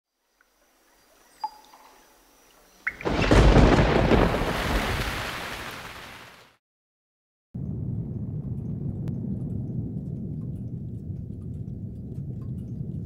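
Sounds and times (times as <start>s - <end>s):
thunder-like crash and rumble: 3.0s - 5.9s, 7.6s - 13.0s.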